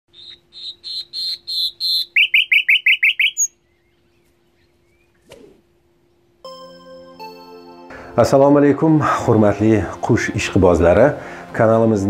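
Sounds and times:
nightingale singing: 0.1 - 5.2
faint steady hum: 0.1 - 7.1.

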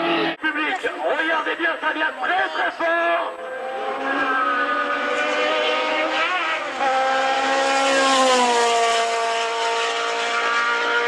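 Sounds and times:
race car engine accelerating: 3.4 - 11.0.

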